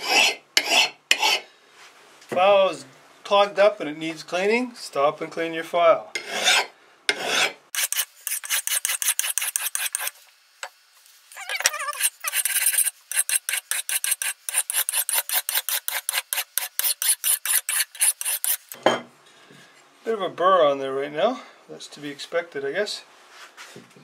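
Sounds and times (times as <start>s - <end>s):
file rasping on steel edge: 0.0s - 1.5s, 6.2s - 10.2s, 11.4s - 18.8s.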